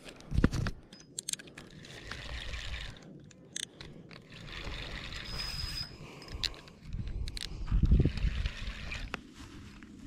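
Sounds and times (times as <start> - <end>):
fishing reel whirring: 1.7 - 3.0, 4.1 - 6.6, 7.9 - 9.1
wind rumble on microphone: 4.5 - 10.0.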